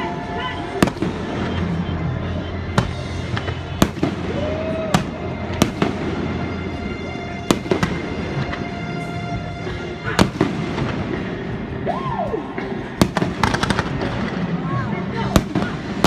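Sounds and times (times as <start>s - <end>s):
music playing: 0.0s - 16.0s
fireworks bursting: 0.7s - 9.3s, 12.6s - 16.0s.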